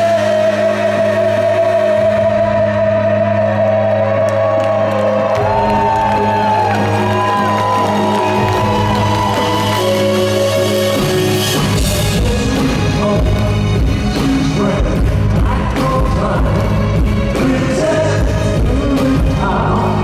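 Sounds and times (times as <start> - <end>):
male vocal singing: 0.0 - 4.7, 11.6 - 20.0
live rock band: 0.0 - 20.0.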